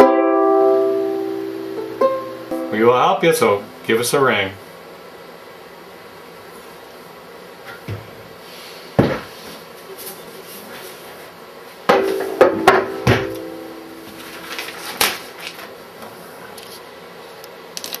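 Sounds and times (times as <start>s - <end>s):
ukulele strings ringing: 0.0s - 3.1s, 11.9s - 14.4s
ukulele knocking on surface: 11.9s - 13.7s.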